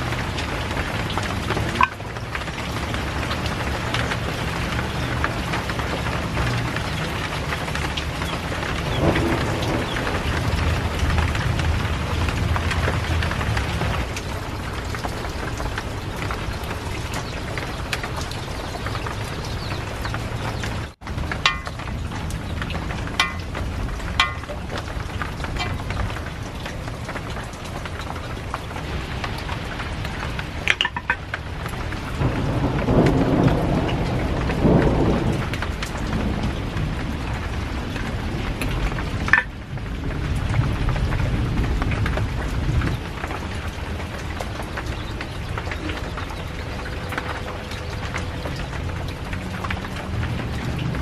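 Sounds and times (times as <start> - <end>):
steady rain: 0.0 - 51.0
thunder rolling: 5.9 - 26.9, 31.4 - 43.3.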